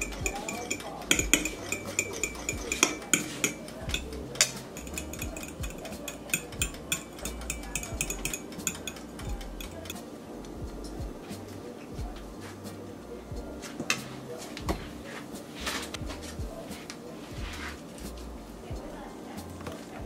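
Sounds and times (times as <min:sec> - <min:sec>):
fork scraping ceramic plate: 0:00.0 - 0:10.0.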